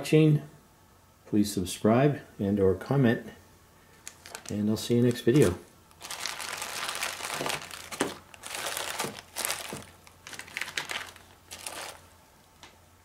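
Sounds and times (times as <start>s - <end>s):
plastic bags crinkling: 4.0s - 12.7s.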